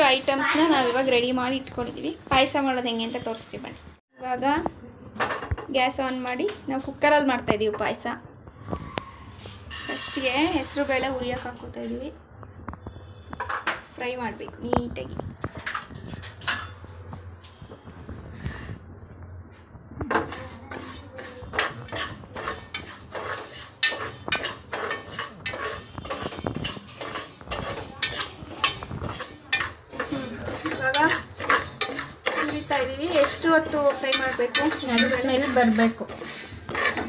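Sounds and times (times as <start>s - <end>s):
spoon scraping metal pot: 0.0s - 1.3s, 9.4s - 12.0s, 15.5s - 17.1s, 18.0s - 18.8s, 20.1s - 37.0s.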